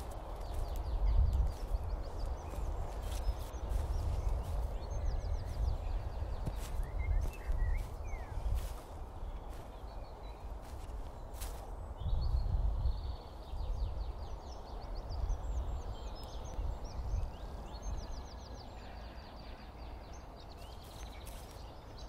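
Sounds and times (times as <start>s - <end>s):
rustling in grass: 0.0s - 12.8s, 20.6s - 22.0s
soft footsteps in grass: 0.0s - 13.6s, 20.6s - 22.0s
low rumble of wind: 0.0s - 22.0s
small birds chirping: 0.0s - 22.0s.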